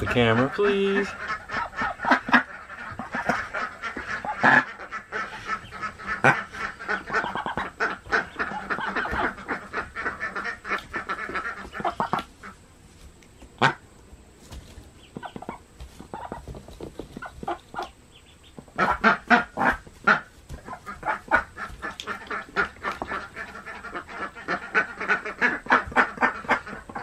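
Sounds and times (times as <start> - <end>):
duck quacking harshly: 0.0 - 12.6, 13.6 - 13.8, 18.8 - 27.0.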